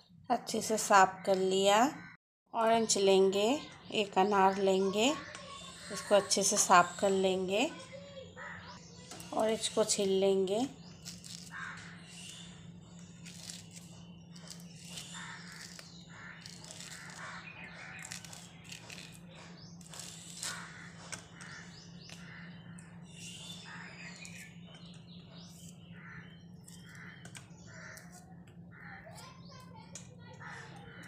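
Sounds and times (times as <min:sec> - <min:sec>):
birds calling: 0:02.8 - 0:31.0
orange peel tearing: 0:10.9 - 0:22.4.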